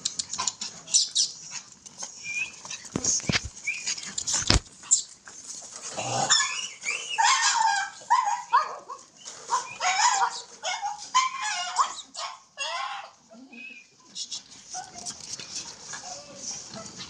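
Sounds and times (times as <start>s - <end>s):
puppies yipping and whining: 0.2s - 5.2s, 6.0s - 14.1s.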